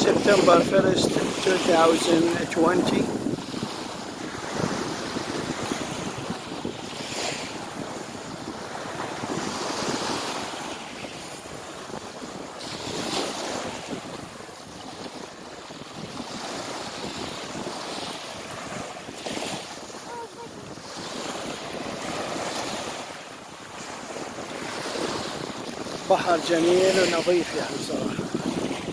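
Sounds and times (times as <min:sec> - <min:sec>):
waves breaking on pebble beach: 0:00.0 - 0:28.9
wind buffeting microphone: 0:00.0 - 0:28.9.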